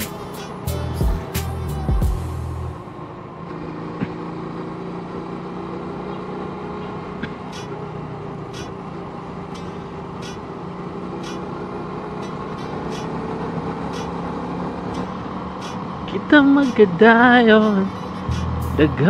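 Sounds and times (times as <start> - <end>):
sharp high ticks: 0.0 - 0.7, 7.2 - 7.8, 8.5 - 8.8, 9.5 - 10.6, 11.2 - 19.0
motorcycle engine cruising: 0.0 - 19.0
wind and road noise: 2.2 - 19.0.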